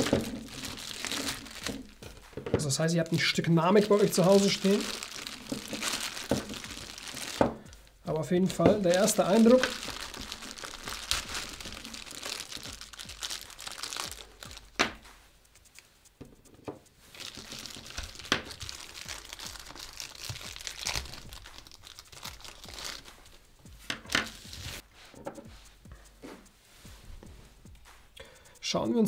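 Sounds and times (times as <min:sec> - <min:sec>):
plastic bag crinkling: 0:00.0 - 0:15.0, 0:17.1 - 0:23.5.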